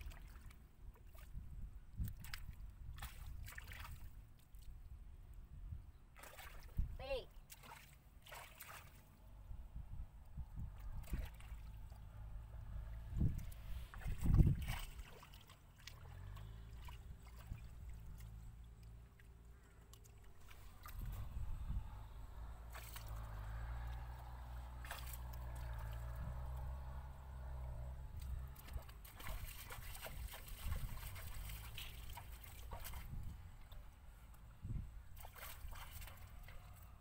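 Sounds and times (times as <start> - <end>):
small splashes: 0.0 - 4.8, 6.1 - 9.3, 10.6 - 37.0
muddy water sloshing: 0.0 - 4.9, 6.1 - 9.6, 10.2 - 37.0
steady low rumble: 16.0 - 35.2.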